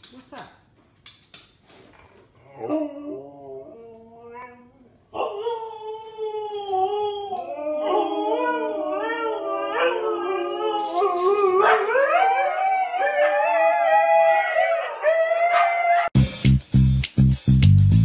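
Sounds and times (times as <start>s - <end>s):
huskies howling: 5.2s - 16.2s.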